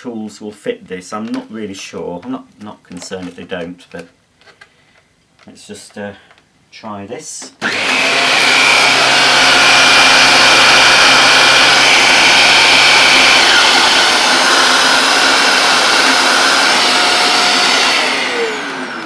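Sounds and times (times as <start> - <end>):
vacuum cleaner running: 7.6 - 19.0.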